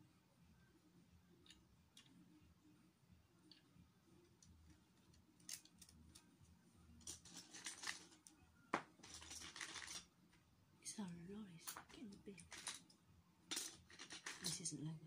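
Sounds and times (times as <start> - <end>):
plastic bricks clicking and rattling: 9.0 - 10.0, 11.7 - 12.9, 13.5 - 14.6.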